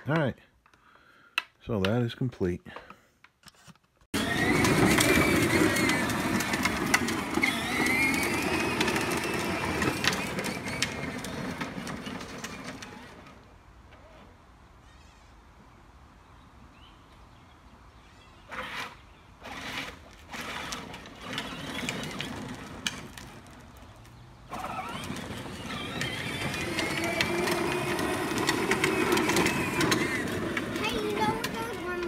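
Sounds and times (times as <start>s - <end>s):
plastic wheels rolling on asphalt: 4.1s - 14.4s, 18.4s - 32.0s
toy car electric motor whine: 4.2s - 13.4s, 18.5s - 32.0s.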